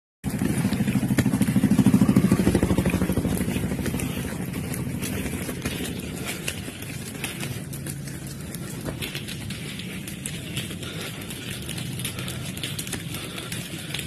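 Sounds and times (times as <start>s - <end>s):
small motorcycle engine running: 0.2s - 14.0s.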